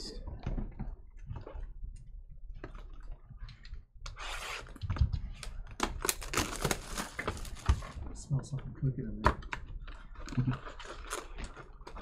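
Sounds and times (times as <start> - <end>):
plastic wrap tearing and crinkling: 5.4 - 8.0, 9.9 - 12.0.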